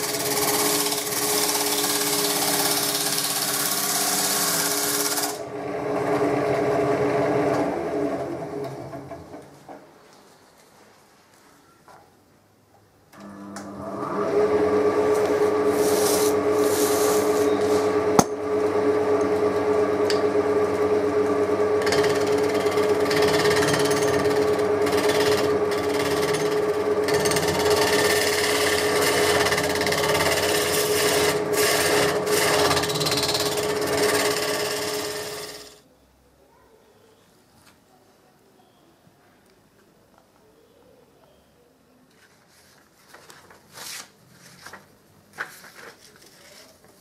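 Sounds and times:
wood lathe humming: 0.0 - 9.0, 13.2 - 35.8
wood being turned by hand: 15.1 - 18.0, 21.8 - 35.7.

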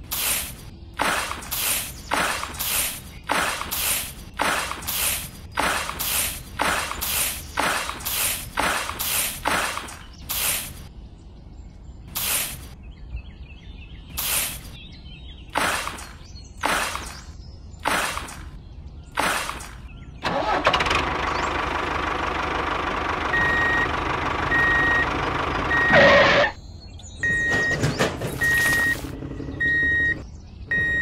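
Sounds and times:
short bursts of hissing: 0.1 - 10.9, 12.2 - 12.8, 14.2 - 14.8, 15.6 - 18.5.

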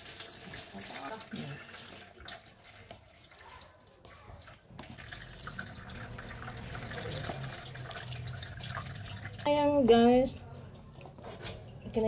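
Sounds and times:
water dripping and trickling: 0.0 - 12.0
wet noodles squishing and rustling: 1.6 - 9.5.

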